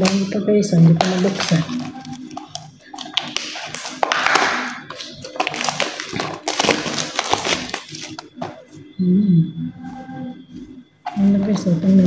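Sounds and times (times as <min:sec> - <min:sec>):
packaging being torn open: 0:01.2 - 0:08.3.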